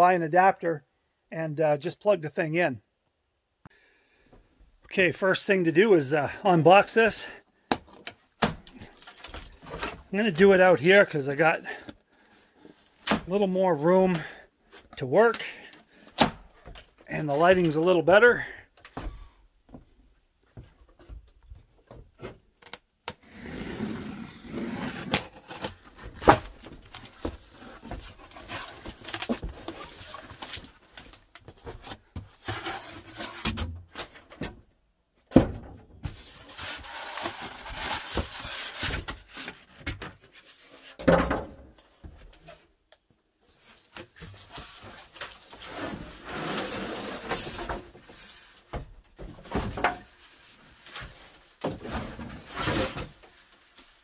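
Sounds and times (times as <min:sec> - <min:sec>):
cardboard and styrofoam rustling: 0:23.2 - 0:34.2, 0:36.1 - 0:41.0, 0:43.5 - 0:54.0.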